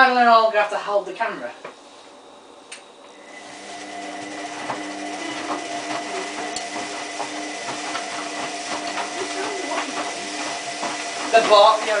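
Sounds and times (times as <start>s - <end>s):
washing machine motor whine: 1.8s - 12.0s
laundry tumbling in drum: 4.6s - 12.0s.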